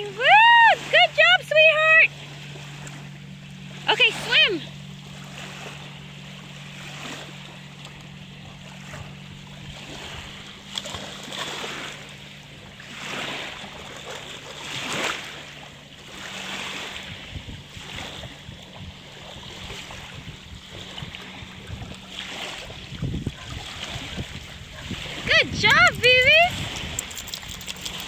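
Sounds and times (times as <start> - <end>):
water lapping and splashing: 0.0 - 28.0
wind on microphone: 17.0 - 27.1.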